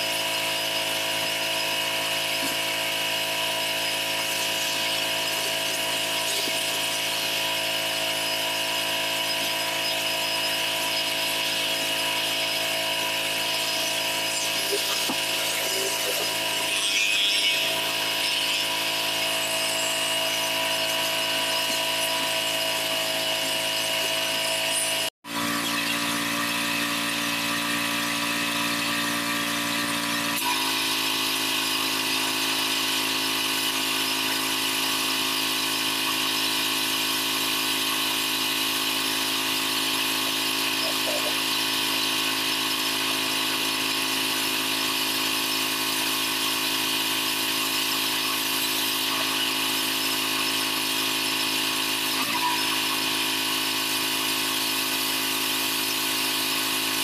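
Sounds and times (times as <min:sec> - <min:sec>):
pressure washer running: 0:00.0 - 0:57.0
water jet hissing on concrete: 0:09.5 - 0:24.8.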